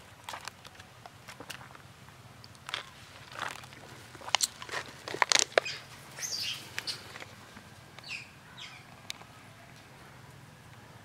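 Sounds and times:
sharp crackles and clicks: 2.4 - 5.9
high animal calls: 5.3 - 9.7.

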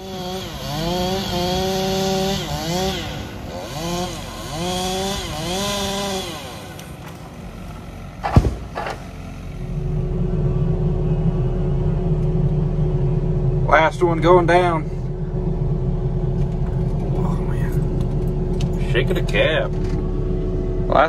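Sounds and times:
chainsaw running at high revs: 0.0 - 8.3
sharp knock: 8.2 - 9.0.

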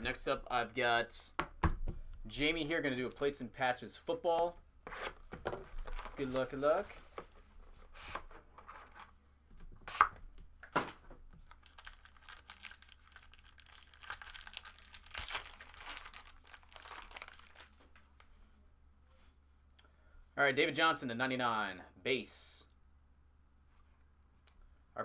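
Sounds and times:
plastic wrapping crinkling: 5.6 - 7.2, 11.4 - 18.3.

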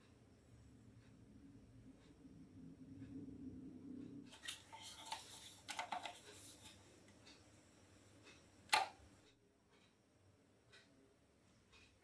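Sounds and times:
plastic toy clicks and rustles: 4.3 - 6.4
sharp plastic click: 8.7 - 9.0.

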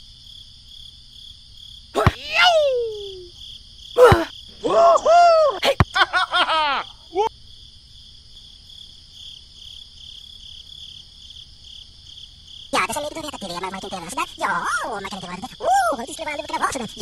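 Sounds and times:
crickets chirping: 0.0 - 17.0
ball being kicked: 2.0 - 2.5, 4.0 - 4.3
squeaky cartoon voice calls: 2.0 - 3.3.

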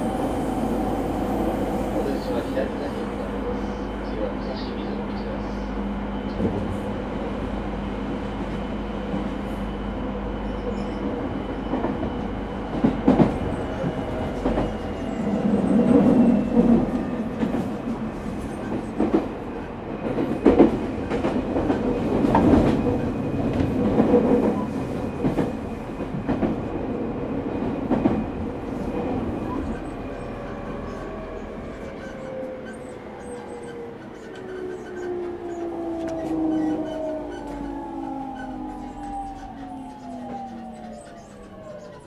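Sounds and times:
train motor rumble and hum: 0.0 - 10.9, 29.7 - 42.0.

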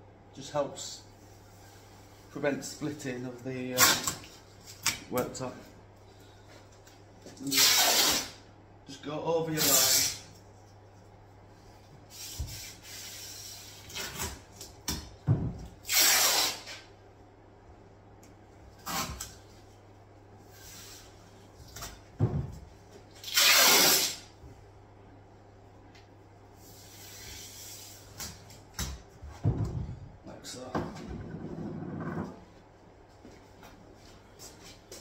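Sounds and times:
masking tape ripping off roll: 3.8 - 4.9, 7.4 - 8.4, 9.6 - 10.3, 15.8 - 16.9, 18.8 - 19.4, 23.2 - 24.3.

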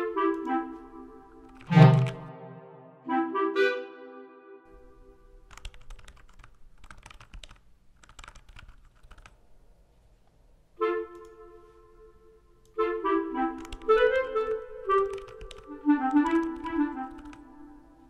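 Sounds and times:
woodwind melody: 0.0 - 5.1, 10.8 - 18.0
typing on computer keyboard: 1.4 - 2.2, 5.5 - 9.4, 13.6 - 13.9, 14.9 - 17.5.

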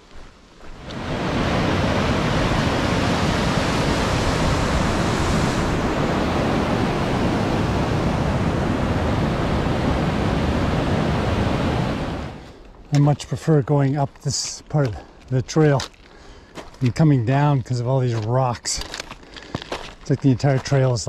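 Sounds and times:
rushing water: 0.1 - 12.5.

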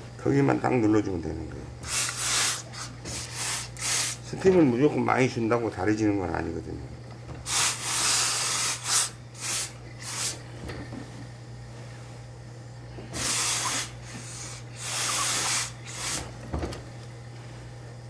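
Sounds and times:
steam iron hissing: 1.8 - 4.3, 7.4 - 10.4, 13.0 - 16.4.

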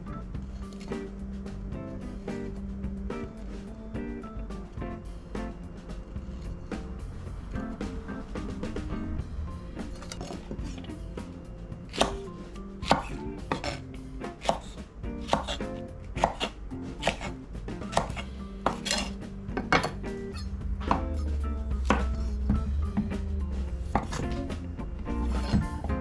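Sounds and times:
background music: 0.0 - 26.0
knife chopping on wooden board: 11.9 - 20.0, 20.8 - 23.2, 23.9 - 24.5, 25.2 - 26.0.

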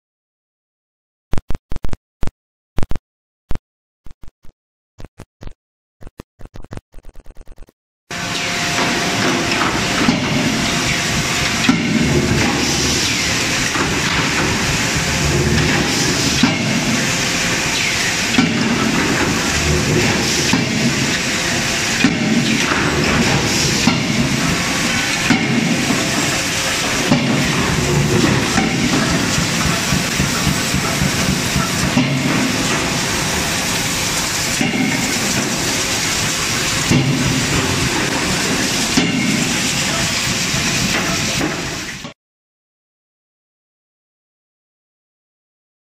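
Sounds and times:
forging hammer blows: 8.1 - 42.1
forge shop hiss and rumble: 8.1 - 42.2.

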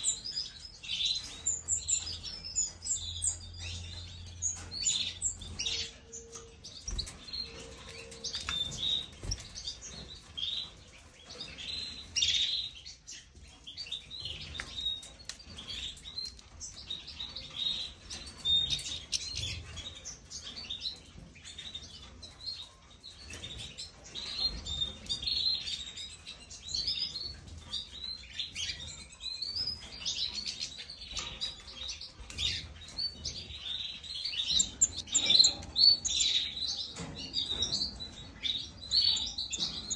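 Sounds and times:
finches chirping and twittering: 0.0 - 39.9.

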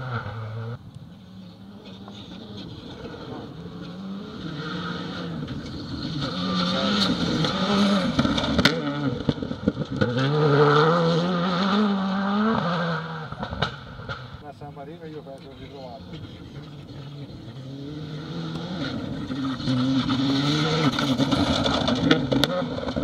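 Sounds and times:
rally car engine passing: 0.0 - 23.0
gravel crunching under tyres: 15.2 - 23.0.

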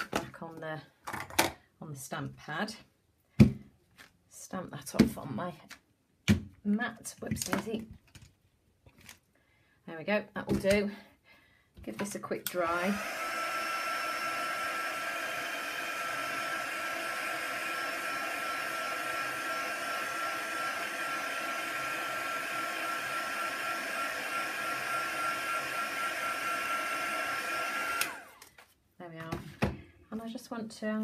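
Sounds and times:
heat tool fan whining: 12.5 - 28.5.

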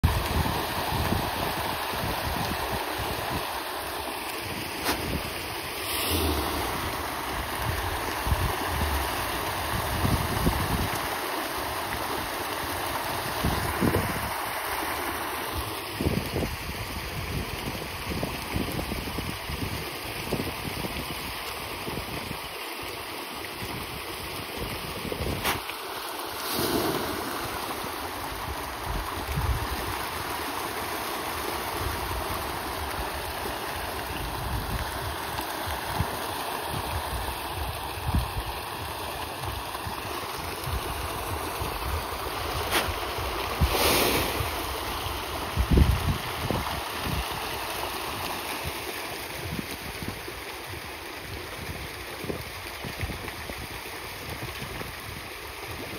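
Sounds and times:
wind on microphone: 0.0 - 3.6, 4.4 - 11.8, 13.1 - 14.4, 24.6 - 25.6, 26.4 - 30.1, 35.9 - 47.6
water rushing: 0.0 - 55.9.

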